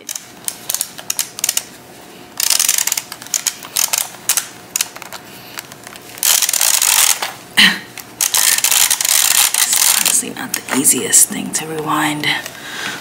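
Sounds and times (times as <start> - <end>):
camera film rewind rattling clicks: 0.0 - 1.7, 2.4 - 7.3, 8.2 - 10.2.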